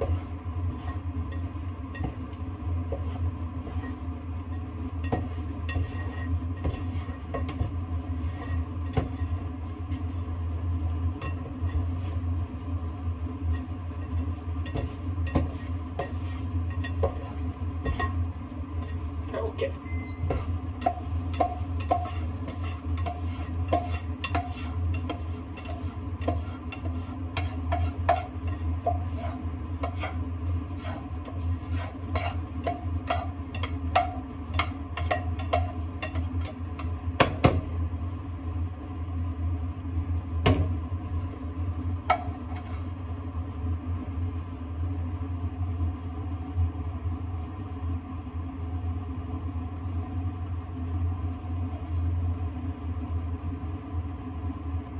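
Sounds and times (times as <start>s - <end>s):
spatula scraping a saucepan: 0.0s - 10.4s, 11.2s - 12.3s, 13.4s - 36.6s, 42.1s - 43.0s
cooktop hum: 0.0s - 54.9s.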